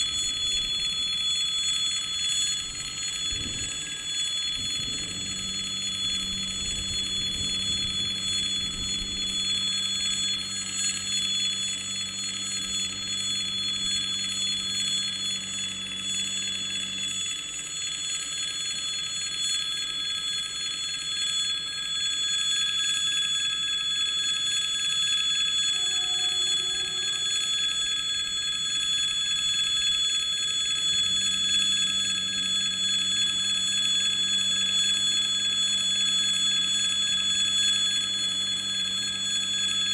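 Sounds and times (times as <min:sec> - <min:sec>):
low steady hum: 0:00.0 - 0:17.2
level-crossing warning bell: 0:00.0 - 0:39.9.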